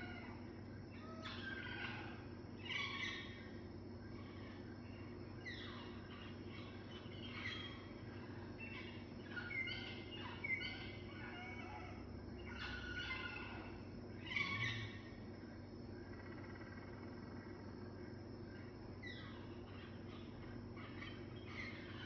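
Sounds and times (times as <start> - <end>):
birdsong through tv speakers: 0.0 - 22.0
steady low hum: 0.0 - 22.0.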